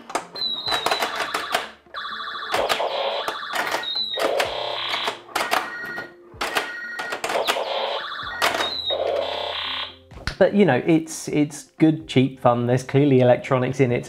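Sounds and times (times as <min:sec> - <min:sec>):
electronic beeps and chirps: 0:00.4 - 0:10.0.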